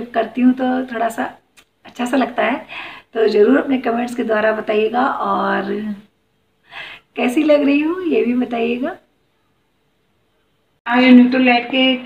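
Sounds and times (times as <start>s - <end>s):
woman's voice: 0.0s - 6.1s, 7.1s - 9.1s, 10.9s - 12.0s.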